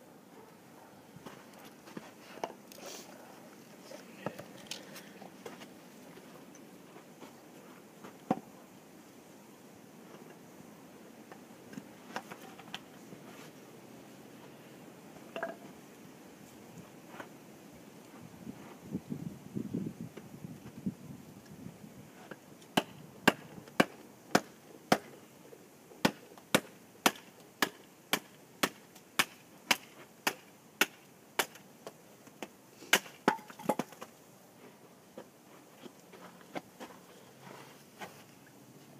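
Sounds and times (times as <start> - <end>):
machete splitting wood: 26.0 - 31.6, 32.9 - 34.0.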